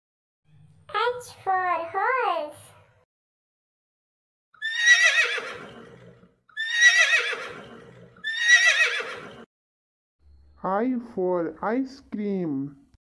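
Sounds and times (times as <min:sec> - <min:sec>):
horse neighing: 0:04.6 - 0:09.5.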